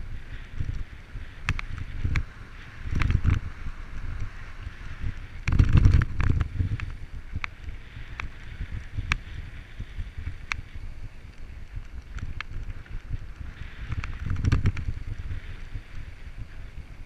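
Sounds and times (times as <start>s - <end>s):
wind buffeting microphone: 0.0s - 17.0s
sharp clicks and rattles: 1.4s - 3.5s, 5.1s - 9.2s, 11.3s - 15.2s.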